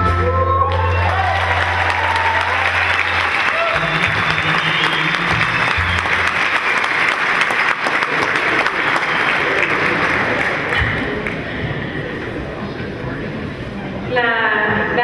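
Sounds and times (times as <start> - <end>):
band playing low held notes: 0.0 - 6.8
audience applauding: 0.6 - 12.0.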